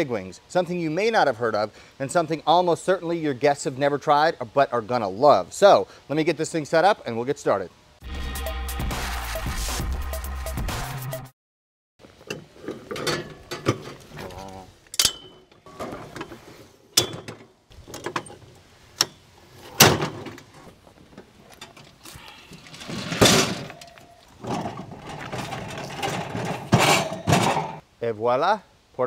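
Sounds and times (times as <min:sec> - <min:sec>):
metal leg stand clanking: 0:12.2 - 0:14.3, 0:14.9 - 0:20.5, 0:21.2 - 0:27.8.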